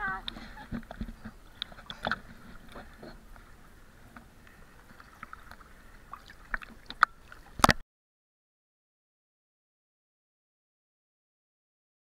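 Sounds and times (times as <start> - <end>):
faint water splashing and lapping: 0.0 - 7.8.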